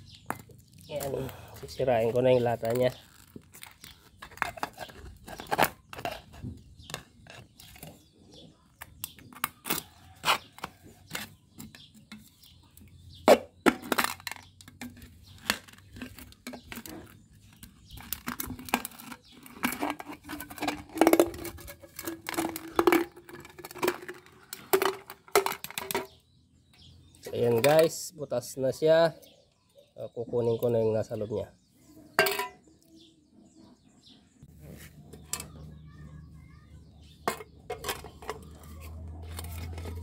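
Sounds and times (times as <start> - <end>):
tin crackling and tearing: 0.3 - 8.0, 8.8 - 11.8, 13.7 - 26.1, 37.3 - 40.0
steel rod scraping a tin can: 2.1 - 8.0, 13.8 - 26.2, 37.2 - 40.0.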